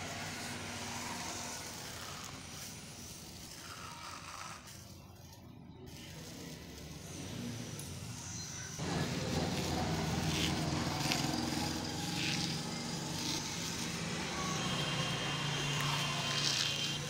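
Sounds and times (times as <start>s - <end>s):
steel shavings crackling in hand: 0.1s - 17.0s
motor humming: 6.3s - 17.0s.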